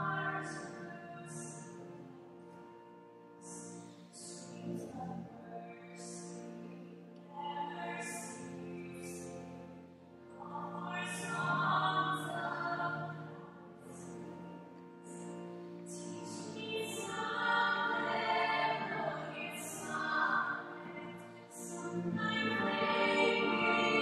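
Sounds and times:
operatic singing with accompaniment: 10.4s - 13.5s, 16.3s - 24.0s.

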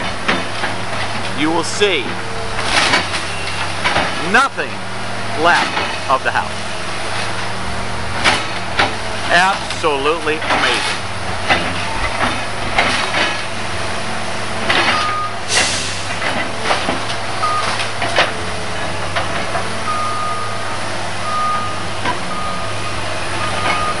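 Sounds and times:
excavator engine running: 0.0s - 24.0s
backup alarm beeping: 15.0s - 15.4s, 17.4s - 17.8s, 19.9s - 20.6s, 21.2s - 24.0s.

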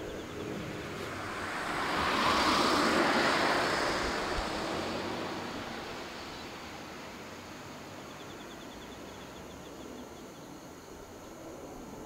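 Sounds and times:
vehicle passing by: 0.0s - 8.0s.

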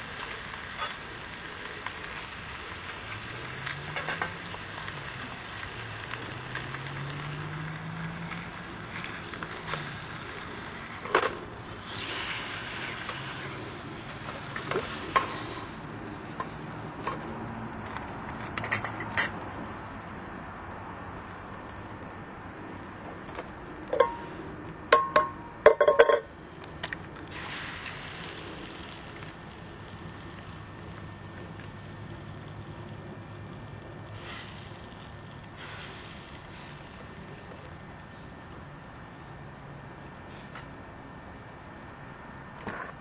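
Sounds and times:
camp stove hissing: 0.0s - 20.3s, 23.8s - 25.4s, 26.2s - 33.2s, 34.0s - 37.9s
metallic clinks of mug and pan: 25.0s - 26.3s.

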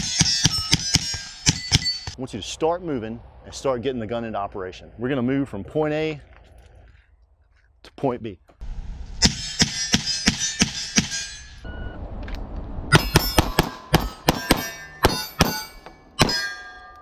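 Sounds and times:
steel targets clanging: 0.0s - 2.2s, 9.2s - 11.7s, 12.9s - 17.0s
pistol shots: 12.9s - 16.5s.

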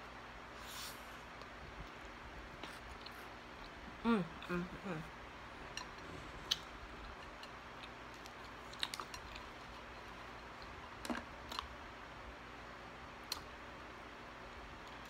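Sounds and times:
chewing: 5.6s - 11.7s.

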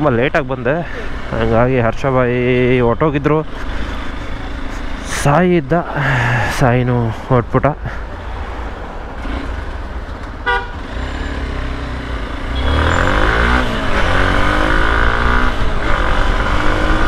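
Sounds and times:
city traffic: 0.0s - 17.0s
motorbike engine accelerating: 9.2s - 17.0s
vehicle horn toot: 10.4s - 10.9s, 12.4s - 13.3s.

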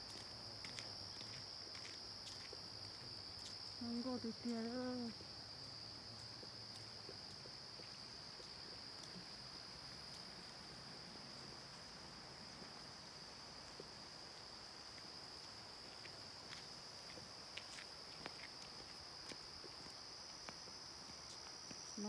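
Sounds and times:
insect trilling: 0.0s - 12.0s.

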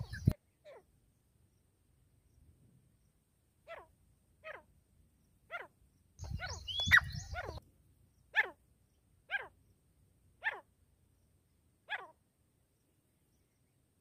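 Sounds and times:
francolin harsh calls: 5.5s - 7.6s.

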